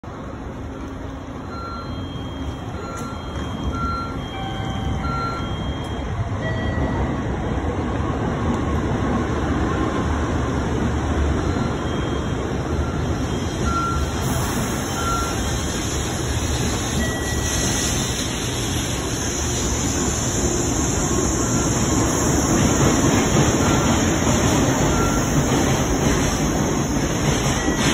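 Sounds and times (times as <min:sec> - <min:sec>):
train wheels rumbling: 0:00.0 - 0:27.9
hiss: 0:14.2 - 0:22.4.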